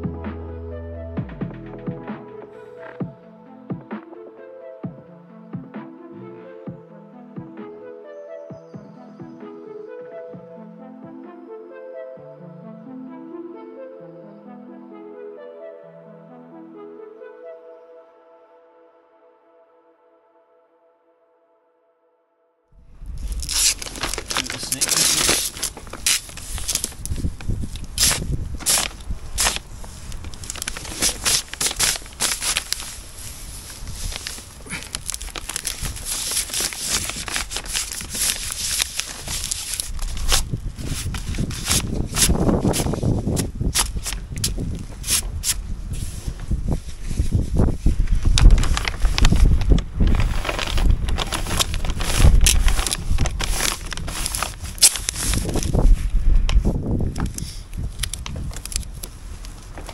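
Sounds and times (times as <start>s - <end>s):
wind rumble on microphone: 22.8s - 59.9s
plastic sheet crinkling under hands: 22.9s - 59.9s.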